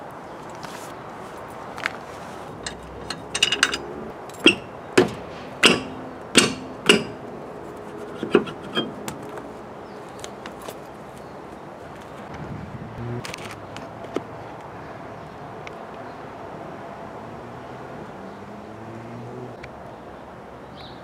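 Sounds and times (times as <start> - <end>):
metal clanks and knocks: 2.6 - 7.4, 8.1 - 9.3.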